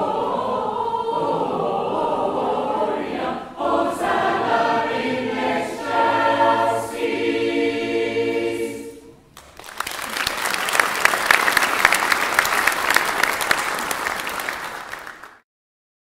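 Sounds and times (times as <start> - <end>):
choir holding a chord: 0.0 - 9.2
audience applauding: 9.3 - 15.4.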